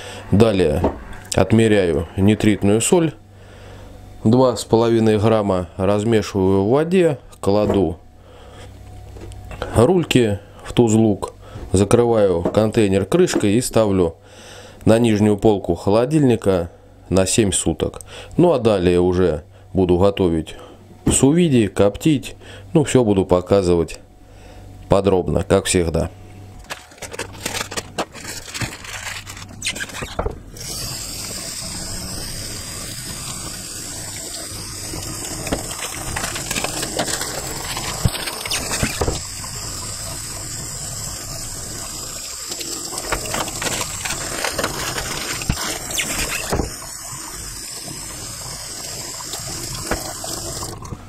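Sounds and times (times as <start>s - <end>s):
tap water splashing into sink: 49.3s - 51.0s.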